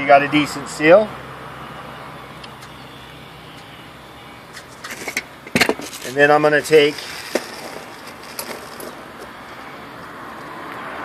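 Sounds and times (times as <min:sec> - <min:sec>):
steady hiss: 0:04.8 - 0:09.6
screws jingling in plastic bag: 0:05.9 - 0:09.1.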